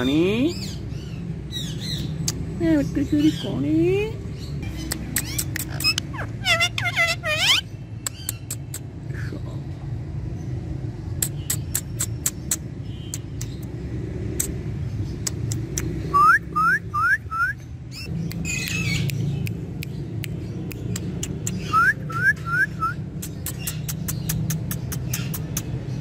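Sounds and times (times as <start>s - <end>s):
parakeet whistling: 21.6s - 23.0s.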